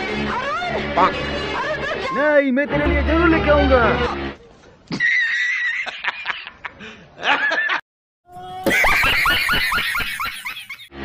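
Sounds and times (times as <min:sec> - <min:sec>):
man laughing hard: 0:04.9 - 0:07.8, 0:08.6 - 0:10.9
man laughing in rhythmic bursts: 0:04.9 - 0:07.8, 0:08.7 - 0:10.9.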